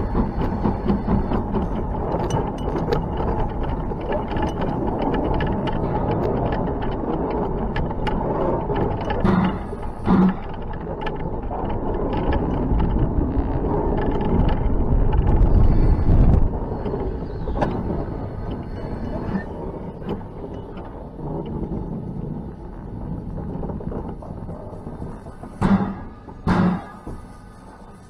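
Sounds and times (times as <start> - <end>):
steam locomotive running rumble: 0.0 - 28.0
wheel-on-rail clicks: 0.0 - 28.0
loud thumps: 25.4 - 27.3.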